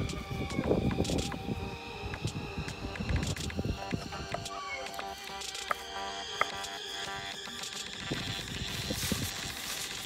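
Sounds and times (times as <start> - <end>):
background music: 0.0 - 10.0
rubbing sounds: 7.5 - 10.0.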